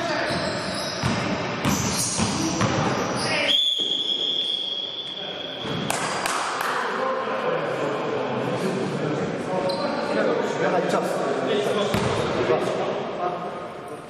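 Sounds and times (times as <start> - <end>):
court noise: 0.0 - 7.2, 11.4 - 14.0
basketball bouncing on floor: 0.3 - 2.9, 11.9 - 12.2
referee's whistle blast: 3.2 - 5.7.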